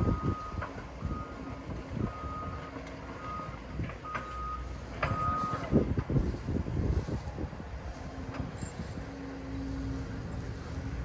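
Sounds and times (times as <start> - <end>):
reversing alarm beeping: 0.0 - 5.8
diesel engine rumble: 0.0 - 11.0.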